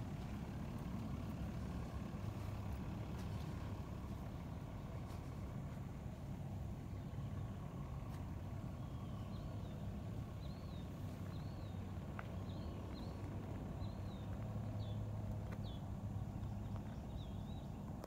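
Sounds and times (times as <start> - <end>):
bird chirping: 8.7 - 17.9.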